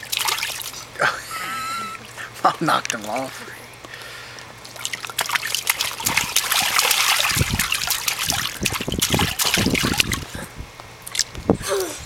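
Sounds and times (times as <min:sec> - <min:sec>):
short water splashes: 0:00.0 - 0:01.0, 0:01.9 - 0:10.4
water trickling into paddling pool: 0:00.0 - 0:01.0, 0:01.8 - 0:10.4.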